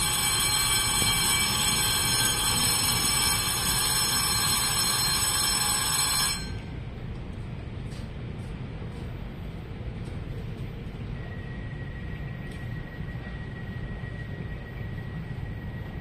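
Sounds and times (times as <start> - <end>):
electric platform bell ringing: 0.0 - 6.8
low train rumble: 0.0 - 16.0.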